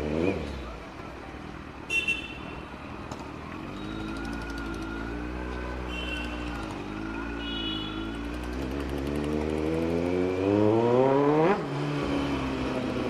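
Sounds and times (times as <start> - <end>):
motorcycle engine revving: 3.2 - 13.0.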